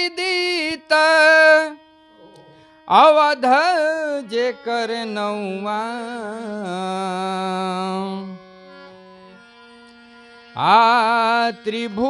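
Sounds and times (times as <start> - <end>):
man singing: 0.0 - 1.8, 2.7 - 8.5, 10.5 - 12.0
harmonium: 0.0 - 12.0.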